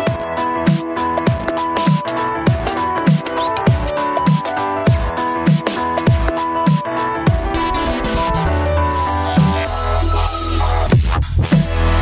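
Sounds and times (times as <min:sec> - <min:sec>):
sustained synth chords: 0:07.3 - 0:10.9.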